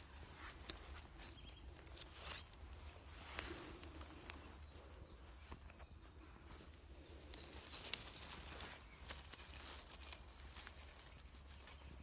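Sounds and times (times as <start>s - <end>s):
rustling in leaf litter: 7.2s - 12.0s.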